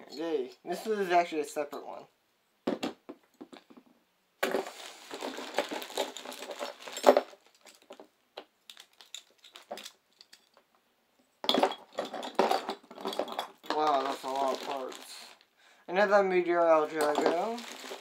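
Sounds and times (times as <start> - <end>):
plastic bag crinkling: 4.4 - 8.1, 8.7 - 10.0, 13.0 - 15.5, 16.8 - 18.0.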